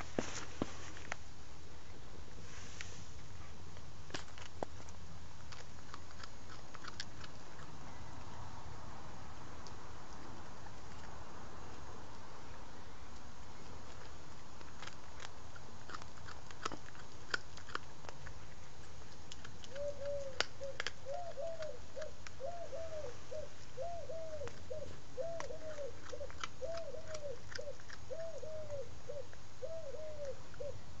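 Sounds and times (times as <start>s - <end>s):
cat chewing bones crunching: 3.6s - 22.5s, 24.4s - 29.6s
dove cooing: 19.7s - 30.8s.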